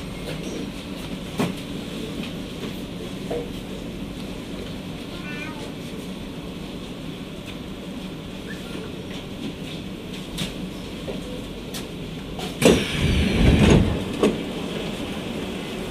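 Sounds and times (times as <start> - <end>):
stopped train humming: 0.0 - 15.9
doors sliding rumble: 12.3 - 15.9.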